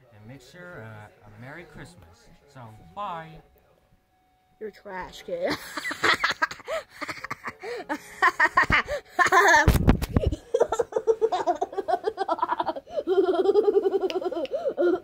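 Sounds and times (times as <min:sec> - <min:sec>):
child laughing: 0:08.2 - 0:15.0.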